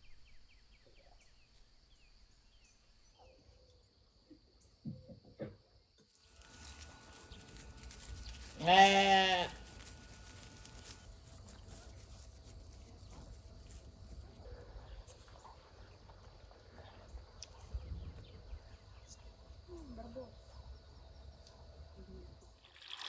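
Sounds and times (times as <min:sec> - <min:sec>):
sheep bleating: 0:08.6 - 0:09.6.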